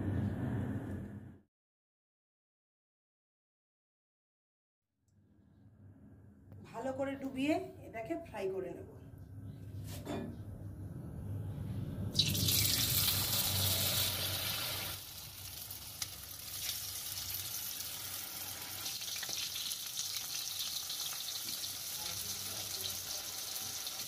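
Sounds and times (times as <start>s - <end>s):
deep-frying sizzle: 12.2s - 24.0s.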